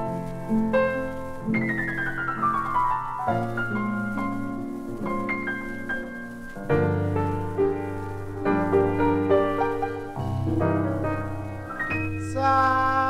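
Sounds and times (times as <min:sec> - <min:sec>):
piano intro from record: 0:00.0 - 0:13.0.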